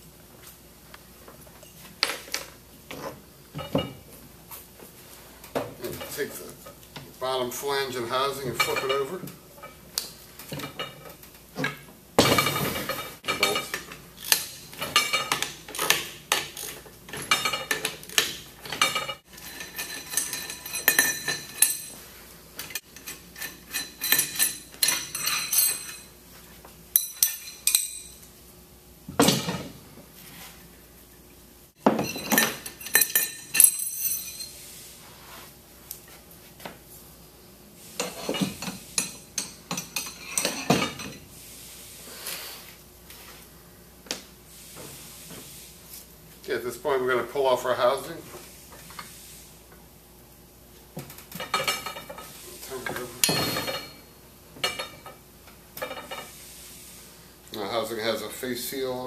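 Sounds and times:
metal clinking and ringing: 18.8s - 22.0s, 23.0s - 26.1s, 26.9s - 28.2s, 31.9s - 34.6s, 53.2s - 55.1s.

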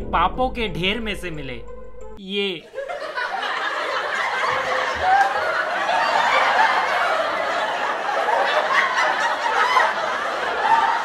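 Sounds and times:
group of people laughing: 2.6s - 11.0s.

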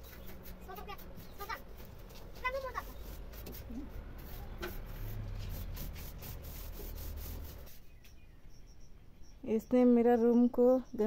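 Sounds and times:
broom scraping bamboo ceiling: 0.0s - 8.0s.

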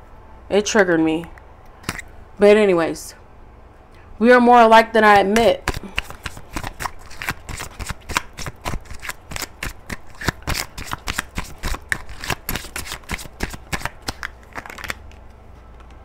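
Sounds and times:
cards being shuffled: 5.6s - 15.3s.

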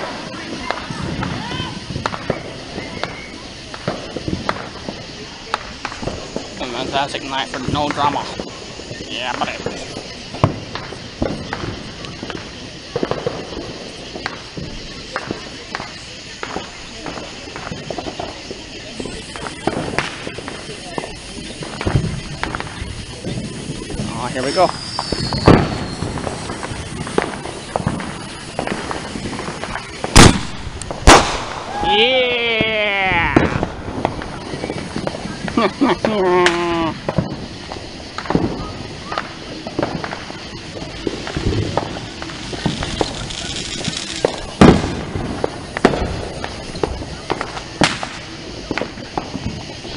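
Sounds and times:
loud firework bang: 0.0s - 18.4s, 19.0s - 49.9s
firework fuse burning: 0.0s - 49.9s.

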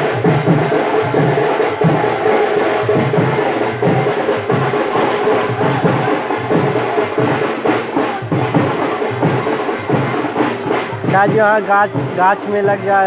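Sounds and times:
procession drums and percussion: 0.0s - 13.0s.

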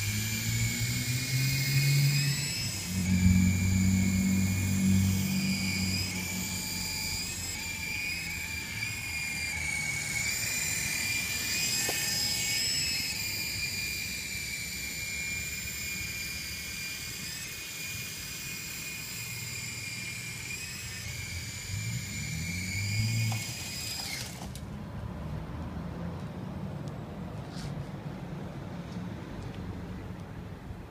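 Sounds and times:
rc helicopter rotors whining: 0.0s - 24.7s.

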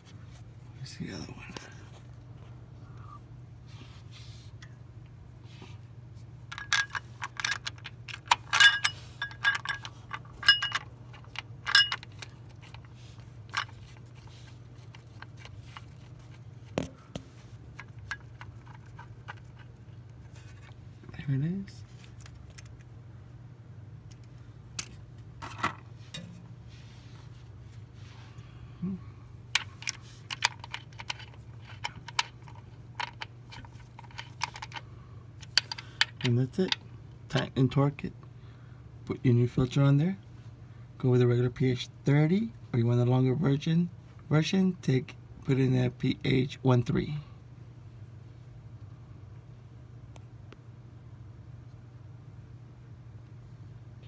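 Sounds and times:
steady low hum: 0.0s - 54.0s
metal tools clinking: 6.5s - 12.3s.

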